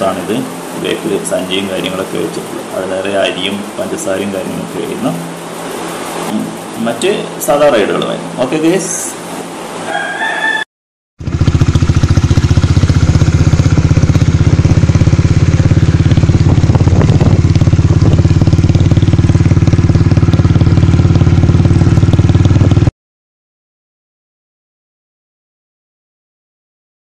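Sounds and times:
motorcycle engine idling: 0.0 - 6.7, 11.2 - 22.9.

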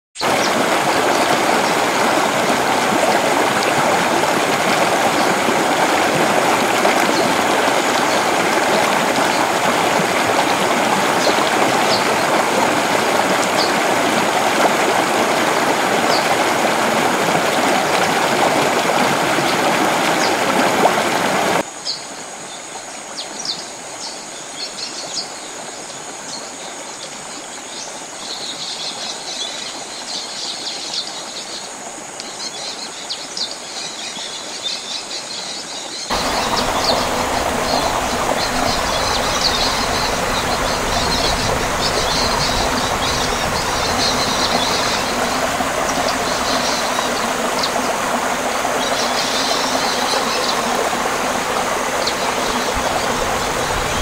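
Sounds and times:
birds chirping: 0.2 - 21.6, 35.9 - 54.0
waterfall rushing over rocks: 0.2 - 21.7, 36.1 - 54.0.

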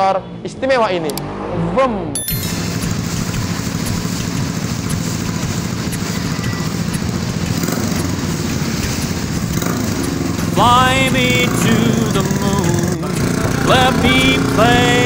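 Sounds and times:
motorcycle engine running: 2.3 - 15.0.

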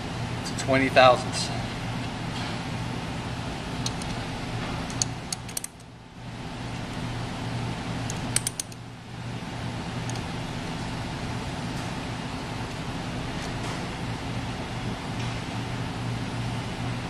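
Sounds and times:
steady low hum: 0.0 - 17.0
wrench clicking on bolts: 4.9 - 5.9, 8.1 - 8.8.

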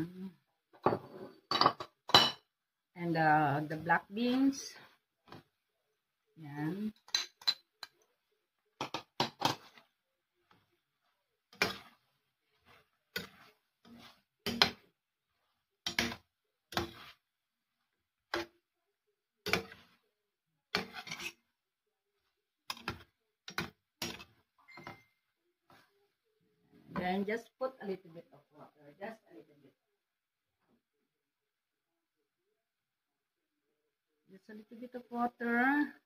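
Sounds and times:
metal spoon scraping a pan: 3.6 - 5.6, 7.0 - 18.6, 19.4 - 20.1, 20.7 - 21.5, 22.2 - 26.0.

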